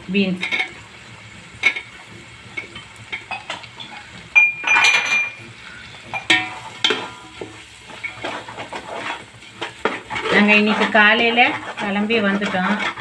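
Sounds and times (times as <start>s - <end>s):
metal ladle scraping cooking pot: 6.0s - 13.0s.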